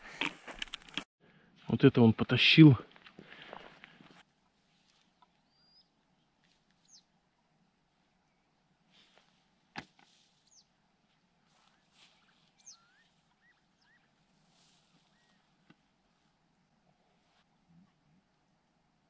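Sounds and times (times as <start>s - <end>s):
small birds chirping: 5.0s - 8.6s, 10.4s - 10.8s, 11.6s - 15.7s.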